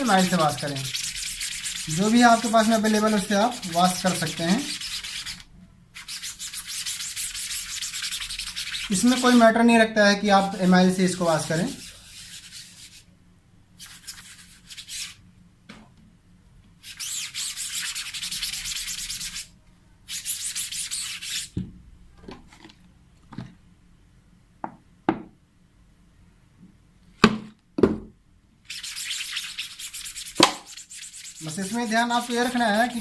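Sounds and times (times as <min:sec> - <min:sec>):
cloth rag scrubbing a screen: 0:00.0 - 0:09.5, 0:10.4 - 0:13.1, 0:13.8 - 0:15.2, 0:16.8 - 0:19.5, 0:20.1 - 0:21.5, 0:28.7 - 0:33.0.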